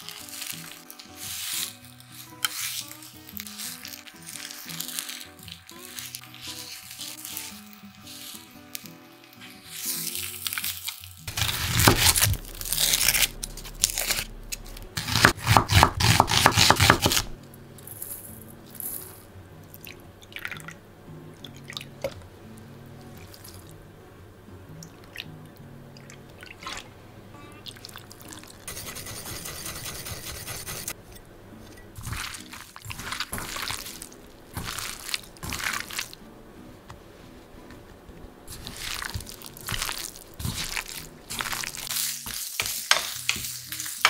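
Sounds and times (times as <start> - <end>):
soft background music: 0.0 - 44.0
knife chopping on wooden board: 11.3 - 13.0, 15.0 - 17.3.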